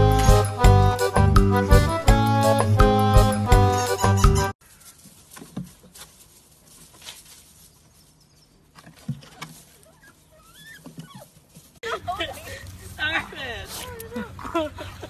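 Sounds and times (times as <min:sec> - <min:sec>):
puppy paws pattering on wood: 0:04.7 - 0:11.8.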